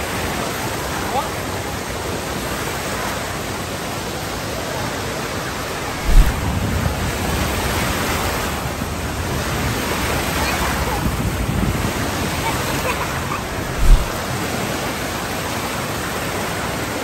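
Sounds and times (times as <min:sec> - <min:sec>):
water washing and splashing: 0:05.6 - 0:17.0
low rumbling: 0:05.8 - 0:07.2, 0:13.2 - 0:14.2
low thump: 0:05.9 - 0:06.4, 0:13.5 - 0:14.2.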